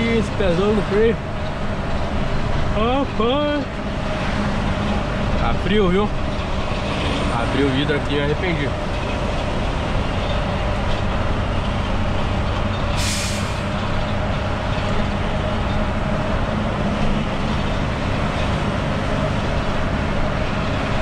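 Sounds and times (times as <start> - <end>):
truck engine running: 0.0 - 21.0
wind and road noise: 0.0 - 21.0
short hiss: 13.0 - 13.6.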